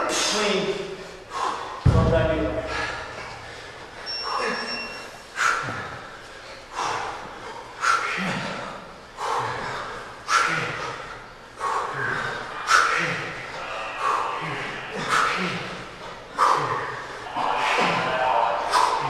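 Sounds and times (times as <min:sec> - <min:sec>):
sharp forceful breaths: 0:00.0 - 0:19.0.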